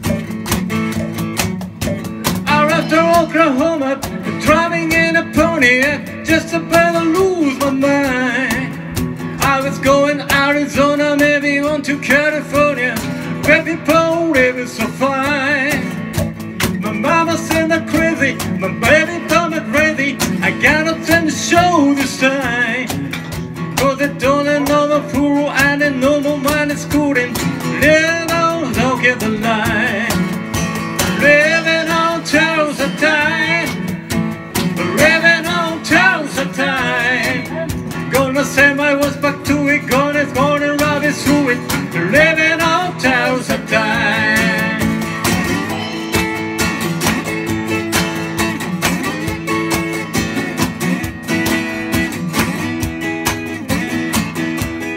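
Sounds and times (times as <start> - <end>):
strummed acoustic guitar: 0.0 - 54.9
man and woman singing together: 2.5 - 8.7, 23.8 - 30.1, 31.2 - 33.8, 34.8 - 45.0.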